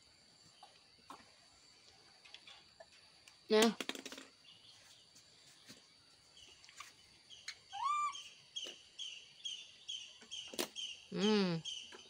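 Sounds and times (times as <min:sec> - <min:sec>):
bird chirping: 0:04.3 - 0:12.0
baby monkey squealing coo: 0:07.7 - 0:08.3.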